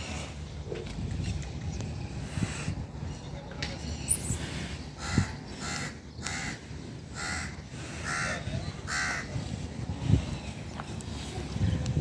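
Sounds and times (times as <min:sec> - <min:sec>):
crow cawing: 0:05.0 - 0:06.6, 0:07.2 - 0:09.3.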